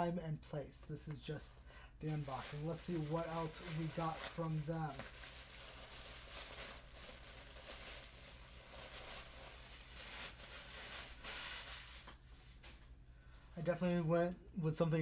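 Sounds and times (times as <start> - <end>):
low steady hum: 0.0 - 15.0
tissue paper rustling: 2.0 - 12.8.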